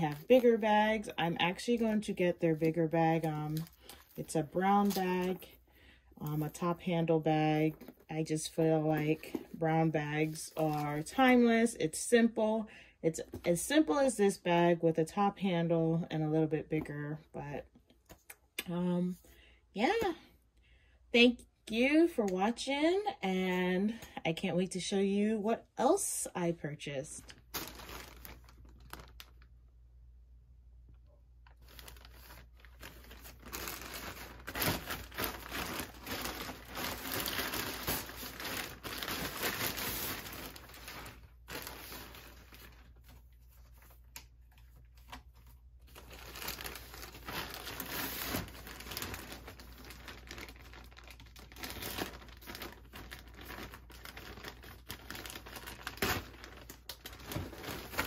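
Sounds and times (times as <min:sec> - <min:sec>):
plastic bag crinkling: 0:00.0 - 0:11.3, 0:27.2 - 0:29.6, 0:31.4 - 0:58.0.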